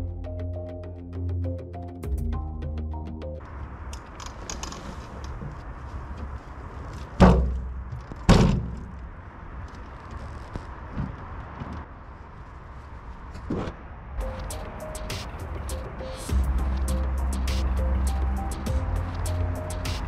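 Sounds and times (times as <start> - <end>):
wheelbarrow knocks: 7.2 - 8.9.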